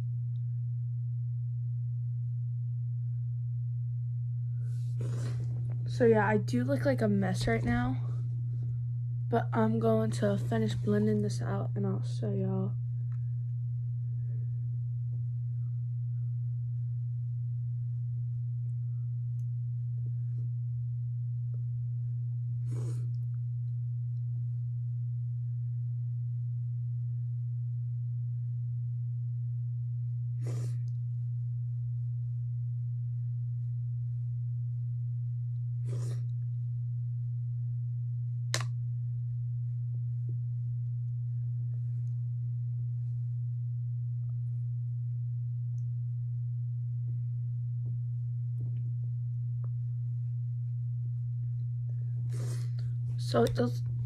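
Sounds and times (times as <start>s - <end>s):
steady low hum: 0.0s - 54.0s
person sniffing: 4.9s - 5.6s, 22.6s - 23.1s, 30.4s - 30.9s, 35.8s - 36.3s, 52.3s - 52.8s.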